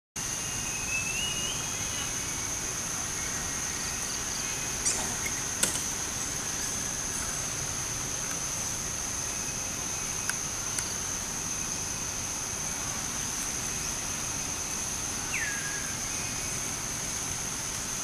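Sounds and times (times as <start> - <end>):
high-pitched insect drone: 0.2 - 18.0.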